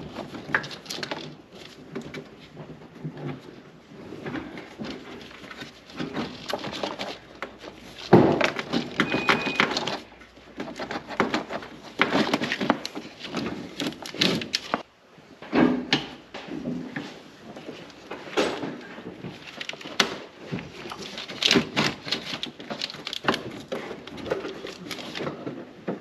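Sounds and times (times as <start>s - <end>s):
wire harness rustling and scraping: 0.0s - 14.9s, 16.9s - 26.0s.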